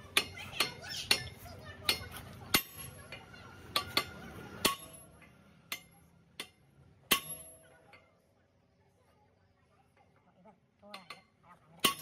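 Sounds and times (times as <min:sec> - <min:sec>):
sledgehammer striking steel: 0:03.7 - 0:07.7, 0:11.8 - 0:12.0.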